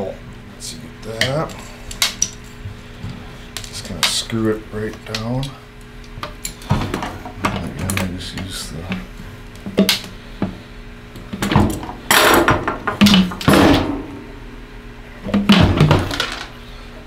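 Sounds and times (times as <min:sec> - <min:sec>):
handling knocks and rustles: 0:06.3 - 0:09.0.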